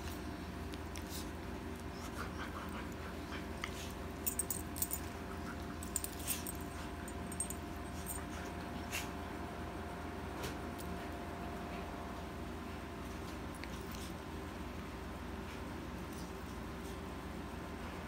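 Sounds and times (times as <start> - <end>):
steady low hum: 0.0 - 18.0
collar tags jingling: 4.2 - 8.4.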